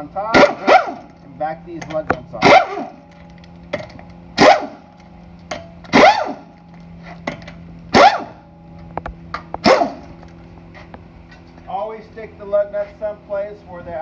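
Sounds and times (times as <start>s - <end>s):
pneumatic impact wrench bursts: 4.4s - 4.8s, 5.9s - 6.5s.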